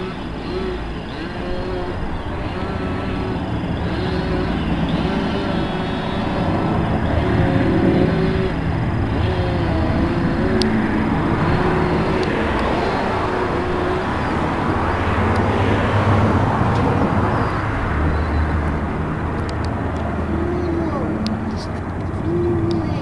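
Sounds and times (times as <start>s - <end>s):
helicopter rotor and engine: 0.0s - 18.4s.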